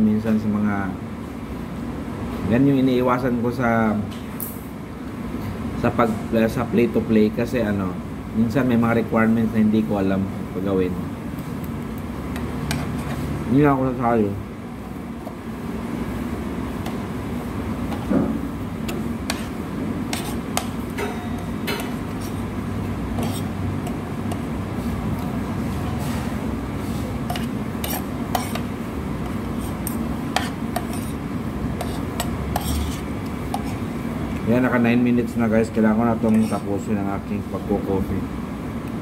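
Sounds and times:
steady background hum: 0:00.0 - 0:39.0
cutlery clinking on plates: 0:21.0 - 0:22.0.

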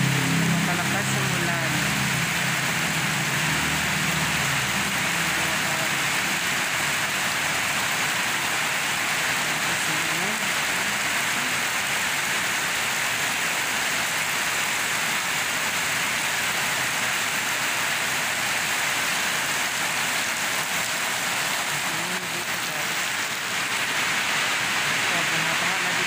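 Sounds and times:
rain on concrete: 0:00.0 - 0:26.0.

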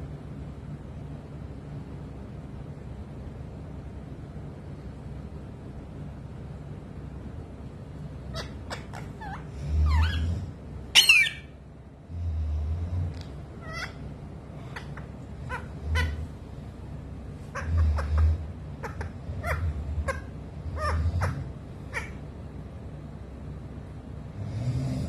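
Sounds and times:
parakeet squeaky chirps: 0:08.3 - 0:11.5, 0:13.6 - 0:14.0, 0:14.7 - 0:16.2, 0:18.8 - 0:22.2.

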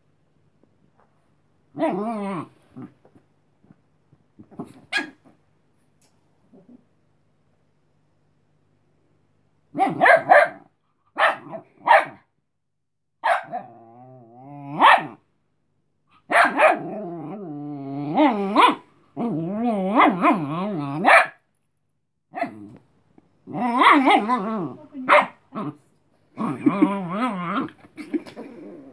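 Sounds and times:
puppy growling: 0:01.8 - 0:03.2, 0:13.4 - 0:15.2, 0:16.5 - 0:21.1, 0:23.4 - 0:28.9.

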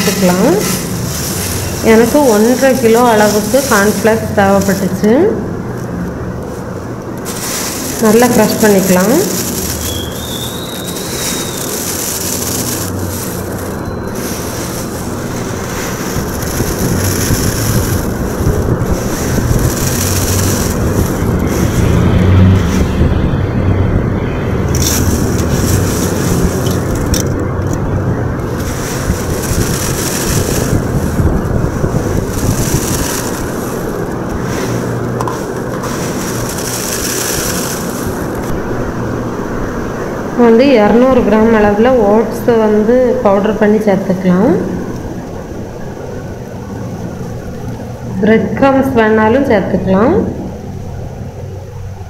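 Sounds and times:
cornflakes crunching in a bowl: 0:00.0 - 0:05.0, 0:07.2 - 0:22.9, 0:24.7 - 0:27.8, 0:28.4 - 0:38.6
low rumble: 0:00.0 - 0:40.3.

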